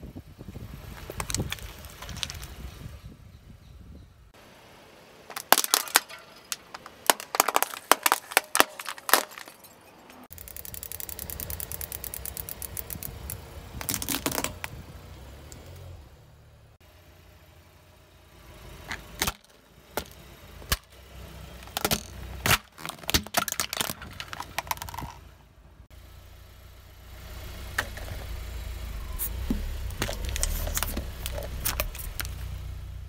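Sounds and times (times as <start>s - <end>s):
plastic pumps cracking under tyre: 1.0s - 2.5s, 5.3s - 9.6s, 10.4s - 14.8s, 21.6s - 25.2s, 29.4s - 32.5s.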